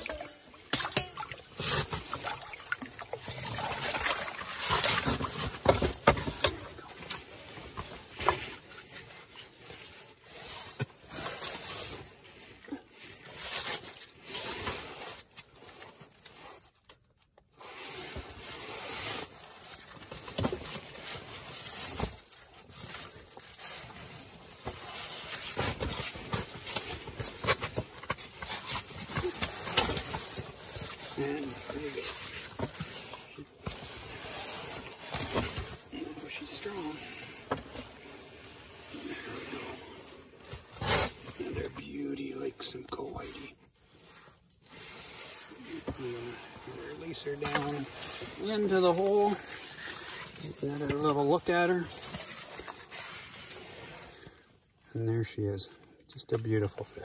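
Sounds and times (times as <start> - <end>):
fish rustling and knocking on ice: 0.0 - 8.8.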